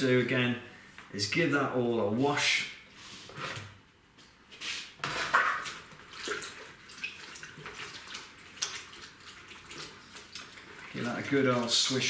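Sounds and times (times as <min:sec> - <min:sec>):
water splashing in a pot: 0:05.2 - 0:12.0.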